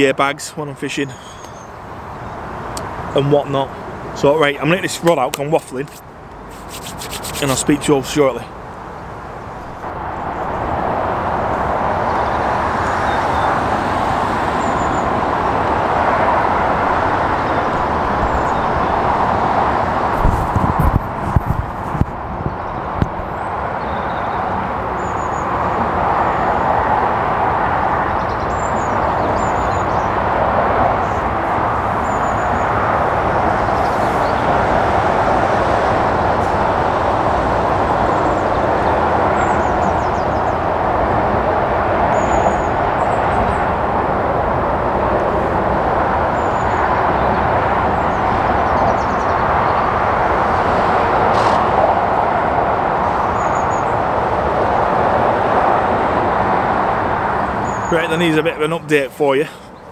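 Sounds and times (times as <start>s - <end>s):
road traffic roar: 0.0s - 59.9s
bird chirps: 1.1s - 1.7s.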